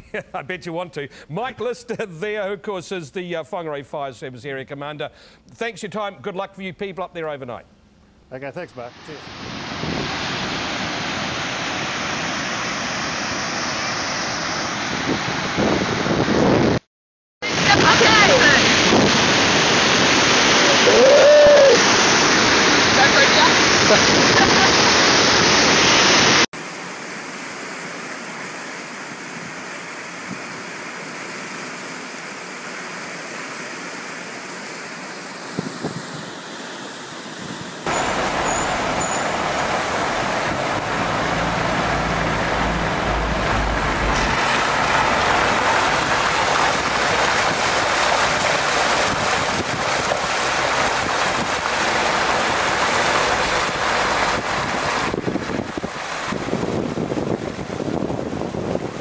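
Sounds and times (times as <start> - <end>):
waterfall rushing: 8.8 - 15.6, 17.4 - 59.0
road and wind noise: 8.9 - 16.8, 17.6 - 20.4, 35.3 - 59.0
vehicle engine running: 37.9 - 48.8, 49.9 - 55.2.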